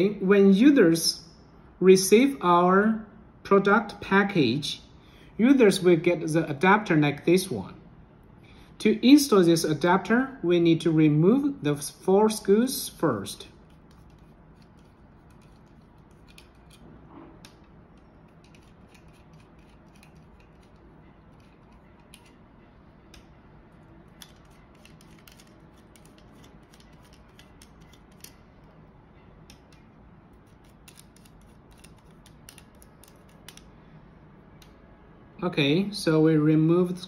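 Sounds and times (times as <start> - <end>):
small clicks and scrapes of screws: 13.6 - 22.4, 24.2 - 28.4, 29.5 - 33.7.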